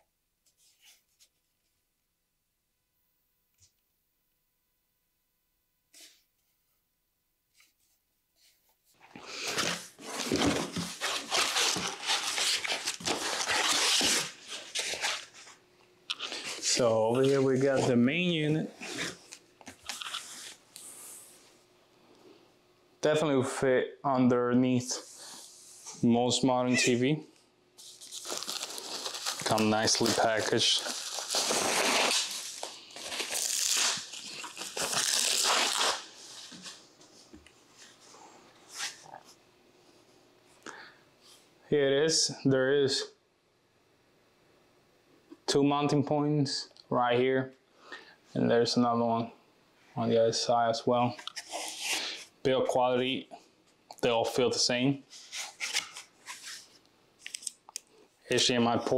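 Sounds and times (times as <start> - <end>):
cardboard and packing rustling: 8.9 - 15.6, 27.8 - 38.0.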